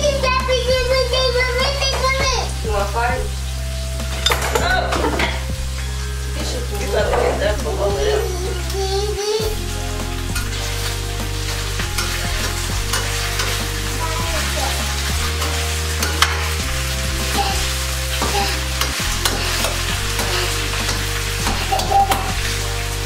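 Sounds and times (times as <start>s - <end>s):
low background music: 0.0s - 23.0s
potatoes and onions sizzling: 0.0s - 23.0s
utensil scraping a pan: 10.3s - 22.6s.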